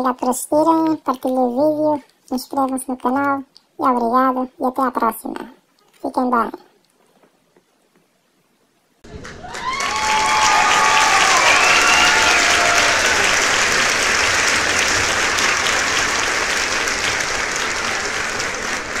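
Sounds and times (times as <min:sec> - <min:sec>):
crowd applauding: 0:09.0 - 0:19.0
crowd cheering: 0:09.0 - 0:19.0.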